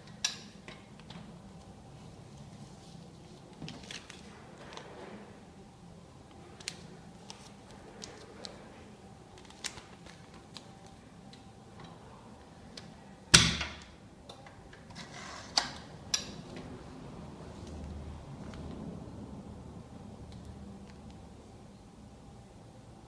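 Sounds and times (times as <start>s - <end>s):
plastic film crinkling: 3.0s - 4.8s, 9.3s - 11.0s.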